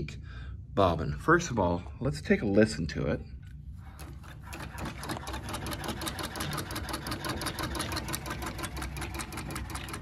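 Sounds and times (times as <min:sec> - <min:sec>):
sewing machine clicking: 0:04.0 - 0:10.0.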